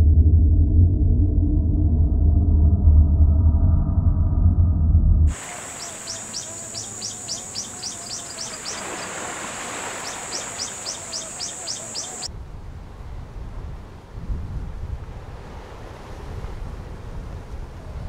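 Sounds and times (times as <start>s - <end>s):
low rumble: 0.0s - 5.3s
bird chirping: 5.3s - 12.3s.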